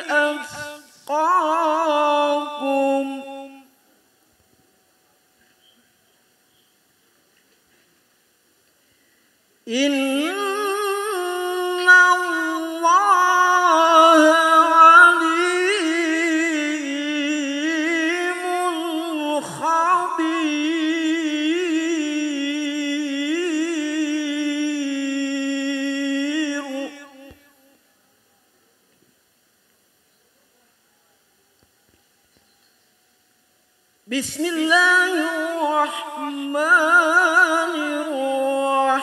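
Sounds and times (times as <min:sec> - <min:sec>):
man reciting melodically: 0:00.0 - 0:03.7, 0:09.7 - 0:27.7, 0:34.1 - 0:39.0.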